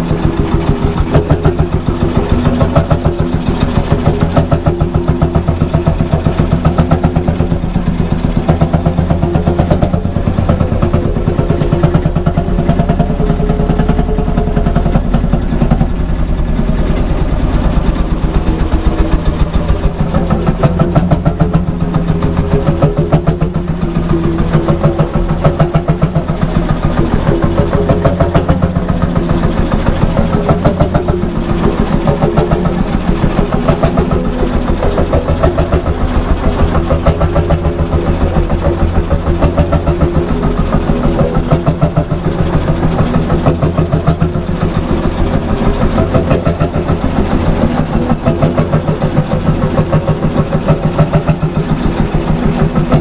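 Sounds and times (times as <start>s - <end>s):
tractor engine idling: 0.0s - 53.0s.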